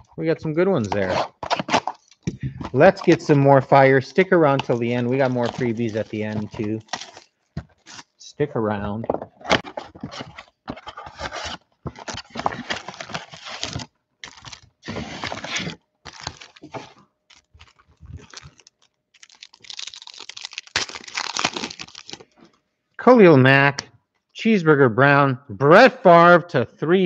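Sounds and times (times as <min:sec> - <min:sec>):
cardboard box tearing: 0:00.9 - 0:02.0, 0:09.5 - 0:16.9
crinkling foil: 0:04.6 - 0:08.1, 0:09.6 - 0:22.4.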